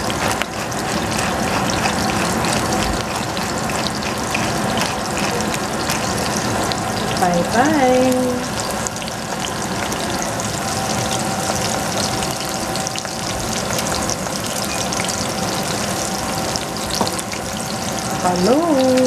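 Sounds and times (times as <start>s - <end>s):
food sizzling in hot oil: 0.0s - 19.0s.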